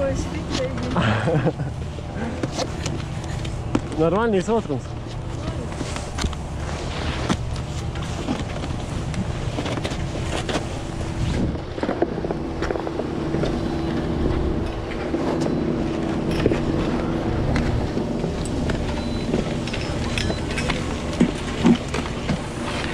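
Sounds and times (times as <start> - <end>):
low hum of lift machinery: 0.0 - 22.9
skis scraping over packed snow: 5.2 - 13.6.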